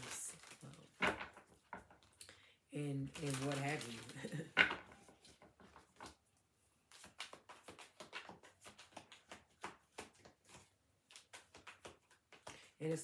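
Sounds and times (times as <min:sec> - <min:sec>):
cards being shuffled: 0:03.0 - 0:04.3, 0:06.8 - 0:12.8.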